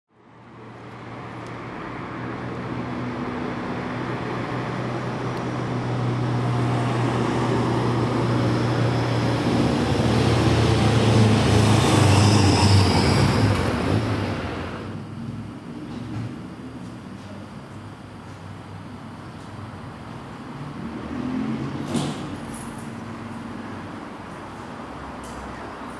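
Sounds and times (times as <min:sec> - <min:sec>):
vehicle passing by: 0:01.7 - 0:16.2, 0:20.4 - 0:24.7.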